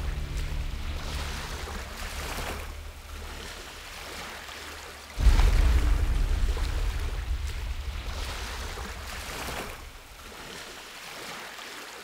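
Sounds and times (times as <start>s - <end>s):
small waves lapping: 0.0s - 12.0s
wind rumble on microphone: 5.2s - 10.8s.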